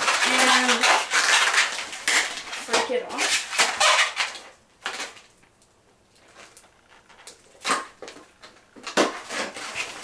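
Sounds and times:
balloons rubbing and squeaking: 0.0s - 5.0s, 8.9s - 10.0s.

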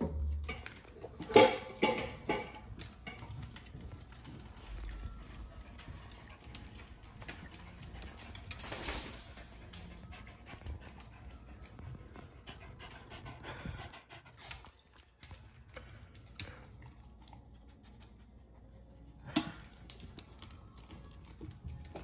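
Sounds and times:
dog panting: 9.7s - 19.3s.

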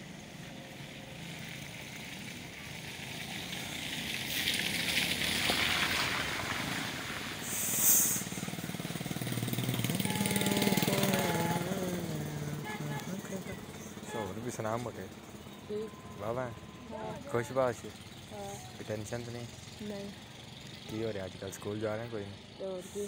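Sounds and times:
road noise: 0.0s - 23.0s
small motorcycle engine approaching: 0.0s - 23.0s
short sharp hiss: 7.4s - 8.3s.

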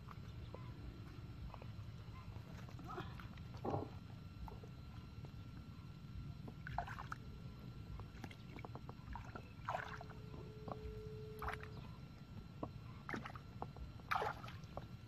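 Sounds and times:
hands sloshing muddy water: 9.1s - 10.1s, 14.1s - 14.6s
short splashes: 9.1s - 10.1s, 14.1s - 14.6s.

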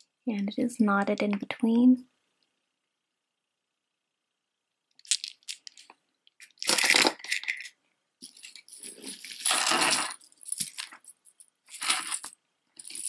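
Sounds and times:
jewelry clinking and clattering: 5.0s - 13.0s.

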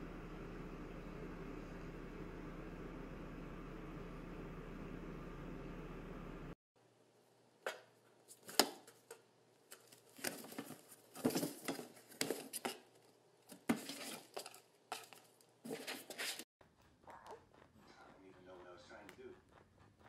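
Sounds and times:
kitten scratching cardboard: 13.5s - 17.9s.

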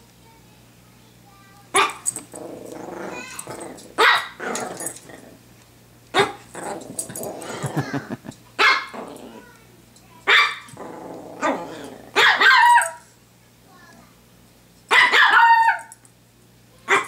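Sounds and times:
small dog barking: 1.8s - 2.1s, 4.0s - 4.4s, 6.1s - 6.4s, 8.6s - 9.0s, 10.3s - 10.7s, 11.5s - 13.0s, 14.9s - 15.9s
dog growling: 2.1s - 5.4s, 6.2s - 8.2s, 8.9s - 9.5s, 10.7s - 12.2s.

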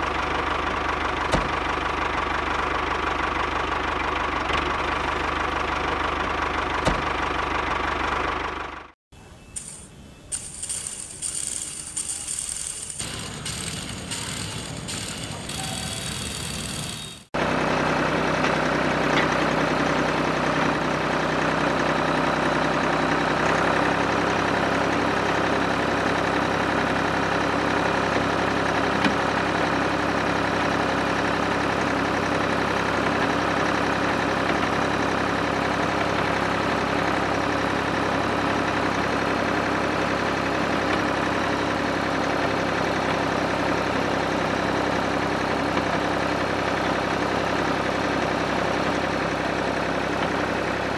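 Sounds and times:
spinning brush sweeping: 9.6s - 17.2s
small motors buzzing whir: 9.6s - 17.3s.

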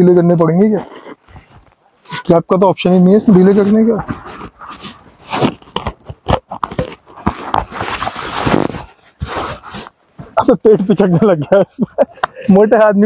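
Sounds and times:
nylon life jacket rustling: 6.8s - 10.3s.

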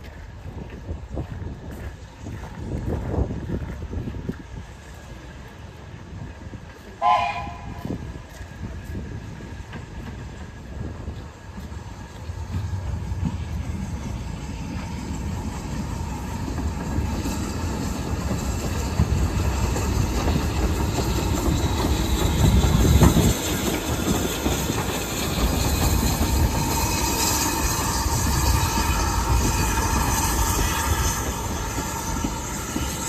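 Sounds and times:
train deep rumble: 0.0s - 33.0s
wheel clatter on rails: 8.3s - 33.0s.

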